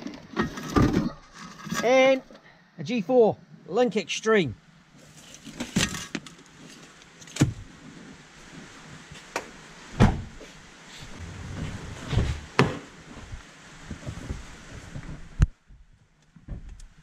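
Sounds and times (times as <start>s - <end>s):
rustling and clatter: 0.0s - 2.1s, 5.0s - 9.4s.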